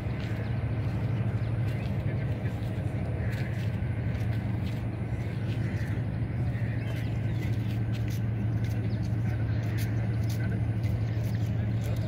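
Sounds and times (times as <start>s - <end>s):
low engine-like drone: 0.0s - 12.0s.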